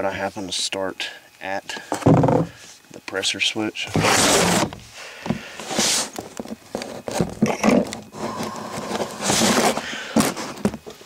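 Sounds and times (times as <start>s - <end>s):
rustling and scraping handling: 3.8s - 11.0s.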